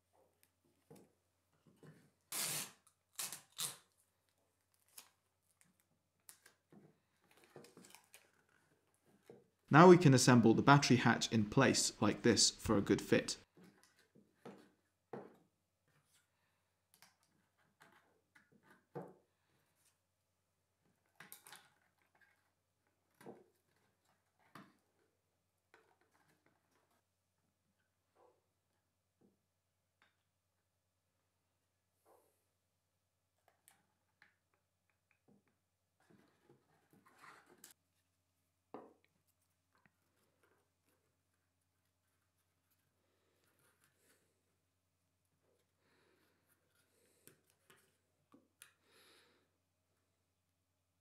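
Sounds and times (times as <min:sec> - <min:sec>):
adhesive tape rasping: 0:02.3 - 0:03.9.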